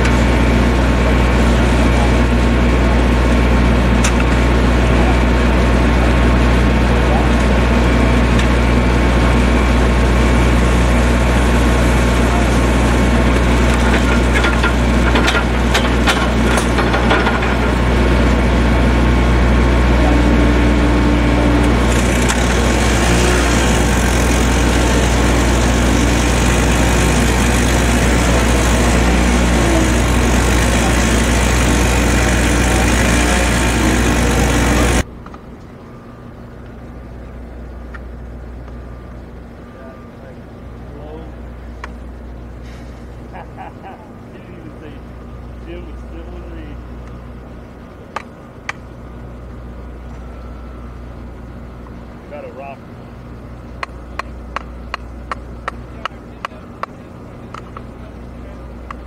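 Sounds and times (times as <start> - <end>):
small engine running: 0.0 - 35.1.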